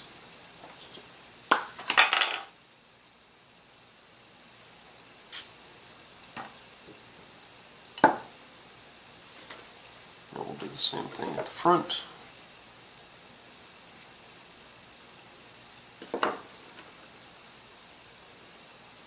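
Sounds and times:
aerosol spray can hiss: 5.3 - 5.6.

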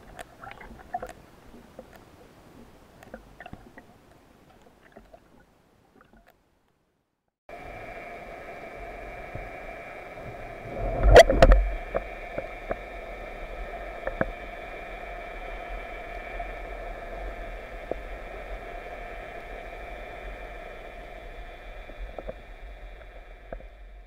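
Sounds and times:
underwater hiss with faint hum: 7.5 - 24.0.

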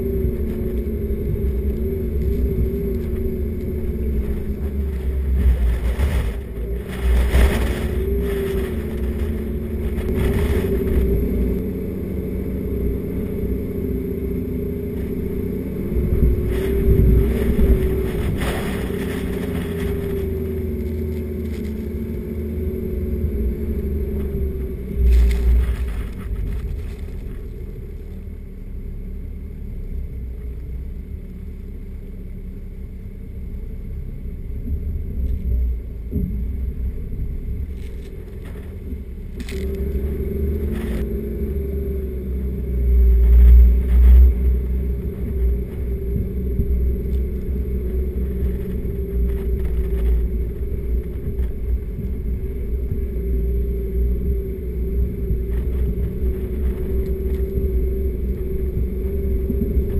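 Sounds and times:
low rumble: 0.0 - 59.9
vehicle engine droning: 0.0 - 59.9
vehicle jolting rattle: 16.4 - 21.9.

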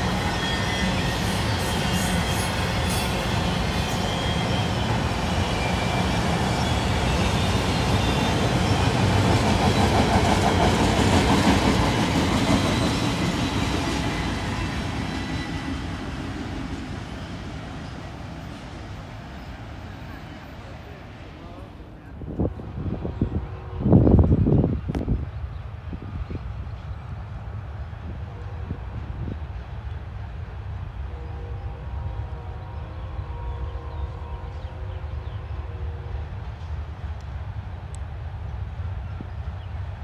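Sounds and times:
train wheels rumbling on rail: 0.0 - 40.0
faint high squealing: 3.9 - 8.8.

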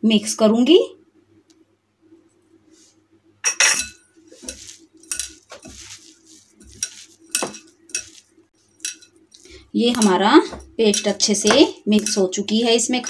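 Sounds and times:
clinks against glass bowl: 3.4 - 4.0.

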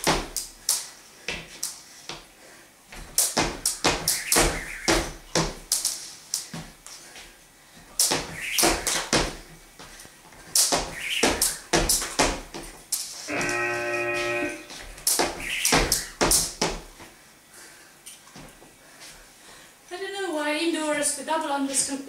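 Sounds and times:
jump rope slapping floor: 0.0 - 2.3, 3.0 - 7.0, 8.0 - 13.6, 14.7 - 16.9
feet landing: 0.0 - 17.2.

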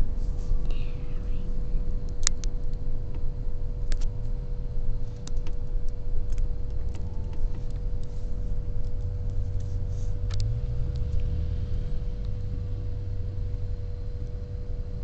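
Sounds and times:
car road noise rumble: 0.0 - 15.0
faint constant hum: 0.0 - 15.0.

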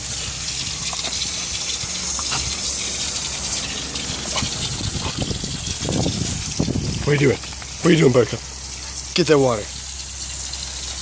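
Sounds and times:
water gushing onto rocks: 0.0 - 11.0.

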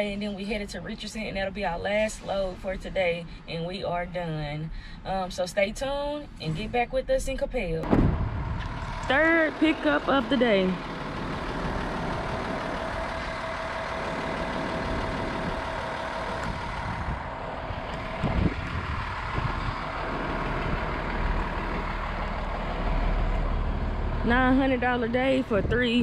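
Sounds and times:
engine whine: 7.8 - 26.0
truck engine running: 7.8 - 26.0.

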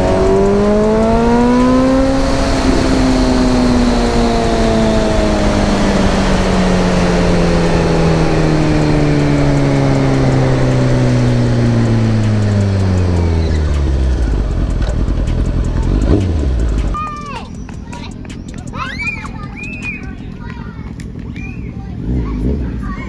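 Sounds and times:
wind rush: 0.0 - 14.8
motorcycle engine winding down: 0.0 - 17.0.

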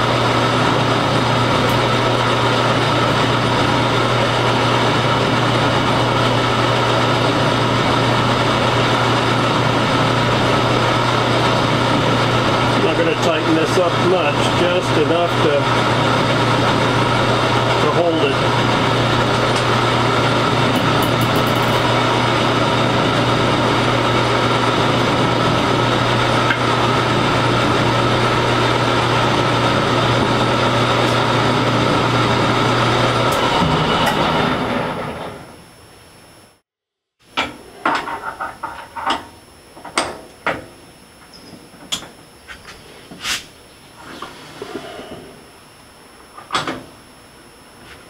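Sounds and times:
lathe winding down: 0.0 - 35.6
metal lathe running: 0.0 - 35.6.

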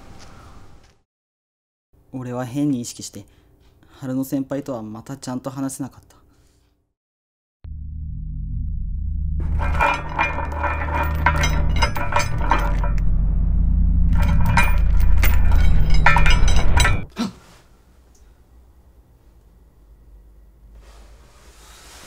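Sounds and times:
low rumble: 7.7 - 17.1
crackling and glass breaking: 9.4 - 13.1.

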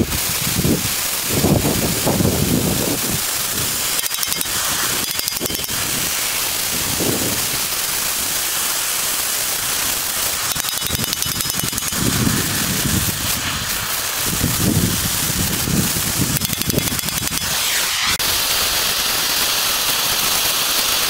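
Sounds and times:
gas torch hissing: 1.5 - 5.1, 11.9 - 16.4.

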